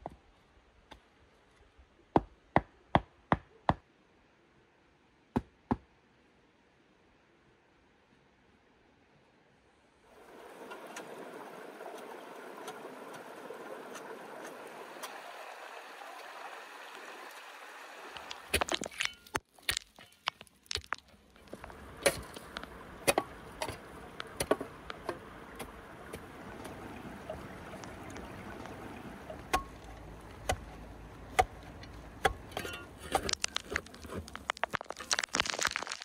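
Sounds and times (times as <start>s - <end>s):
shovel scraping stony soil: 32.2s - 36.0s.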